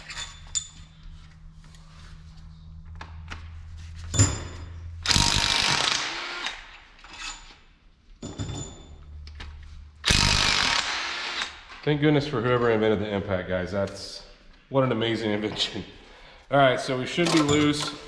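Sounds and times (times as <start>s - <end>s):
impact wrench hammering: 4.2s - 6.7s.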